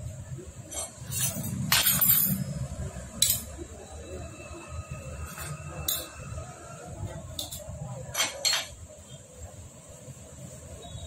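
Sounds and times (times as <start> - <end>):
metal parts clinking: 0.7 - 2.4, 3.2 - 3.5.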